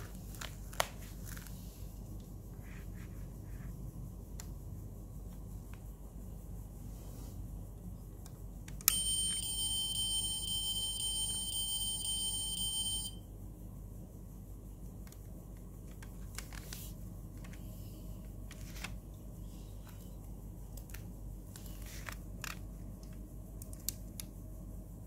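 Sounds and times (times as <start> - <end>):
click: 4.4 - 4.6.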